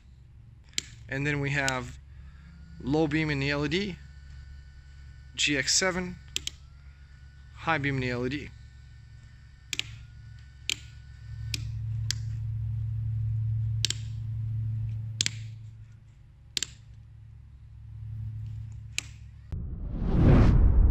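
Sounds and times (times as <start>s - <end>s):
low hum: 0.0s - 20.9s
switch clicks: 0.7s - 1.9s, 6.3s - 6.6s, 9.7s - 10.0s, 10.6s - 12.3s, 13.8s - 14.2s, 15.2s - 15.6s, 16.5s - 17.0s, 18.4s - 19.2s
rising whoosh: 19.5s - 20.9s.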